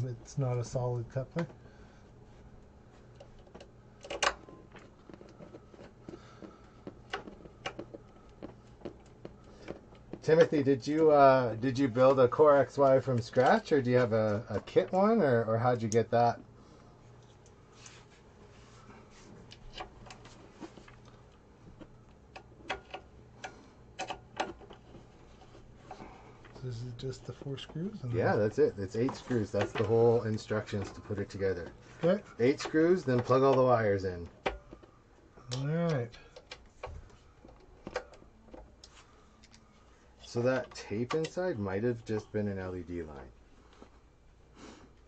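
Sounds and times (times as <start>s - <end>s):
plastic parts clicking and knocking: 3.2s - 10.5s, 21.8s - 25.1s, 34.3s - 35.0s, 36.2s - 39.6s
light clicks and taps of parts: 34.3s - 39.6s.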